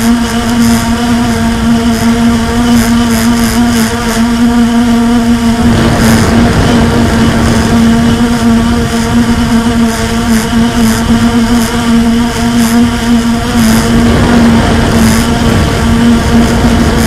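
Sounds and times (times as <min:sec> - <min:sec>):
quadcopter propellers buzzing: 0:00.0 - 0:17.0.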